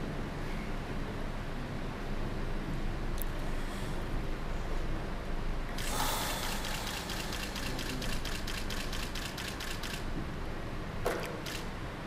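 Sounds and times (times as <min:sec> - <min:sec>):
low electrical hum: 0:00.0 - 0:12.0
camera shutter clicks: 0:06.7 - 0:10.1, 0:11.2 - 0:11.7.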